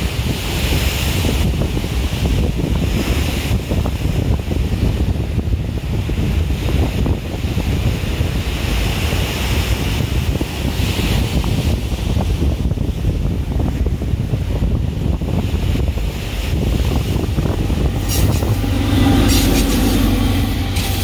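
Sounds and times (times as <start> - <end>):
wind buffeting microphone: 0.0 - 21.0
surf breaking over rocks: 13.4 - 21.0.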